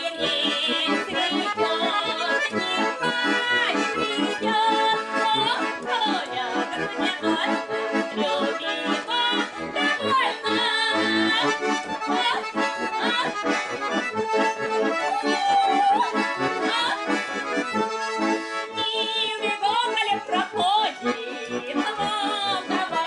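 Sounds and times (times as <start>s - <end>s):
button accordions playing folk tune: 0.0s - 23.0s.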